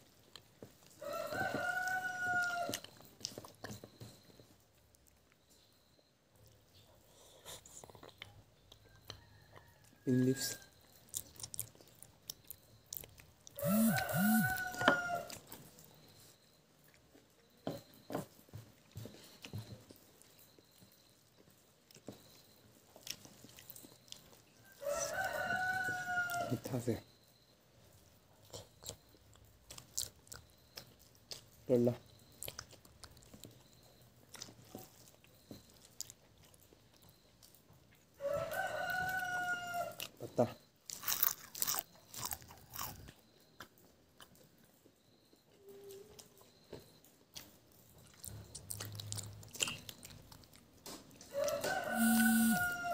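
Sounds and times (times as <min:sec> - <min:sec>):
rooster crowing: 0:00.9 - 0:02.9, 0:08.9 - 0:10.8, 0:13.6 - 0:15.4, 0:24.6 - 0:26.8, 0:38.2 - 0:40.5, 0:51.2 - 0:52.9
mouth clicks of chewing: 0:06.4 - 0:16.0, 0:28.4 - 0:38.1, 0:39.9 - 0:44.7, 0:45.7 - 0:52.6.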